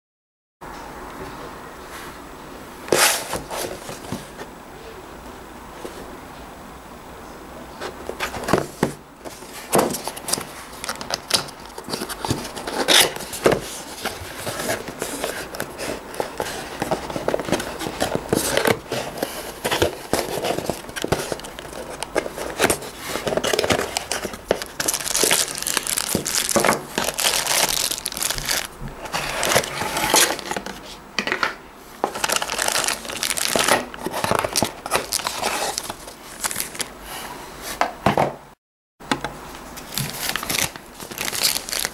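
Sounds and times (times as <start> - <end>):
paper leaflet rustling: 7.8 - 31.0, 32.0 - 36.9, 39.6 - 41.9
cardboard box opening: 7.9 - 30.9, 32.0 - 36.9
plastic bags crinkling: 8.3 - 30.9, 32.0 - 36.9, 39.8 - 41.9.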